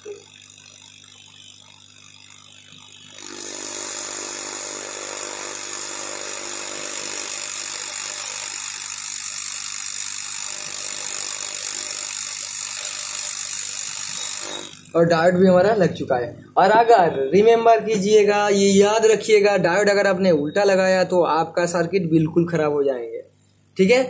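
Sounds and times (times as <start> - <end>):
hot air rework station hissing: 2.3 - 15.4.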